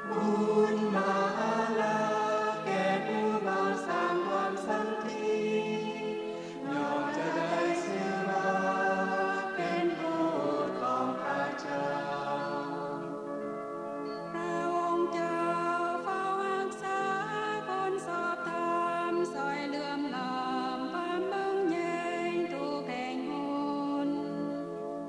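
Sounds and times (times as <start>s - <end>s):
choir singing a slow chant: 0.0s - 13.1s.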